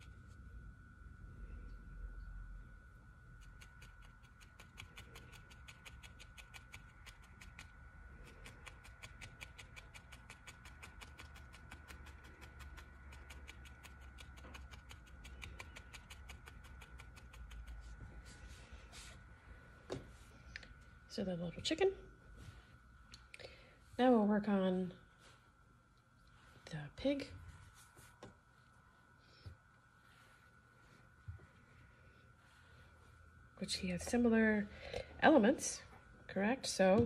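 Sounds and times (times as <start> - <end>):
felting needle poking wool: 3.4 - 18.0.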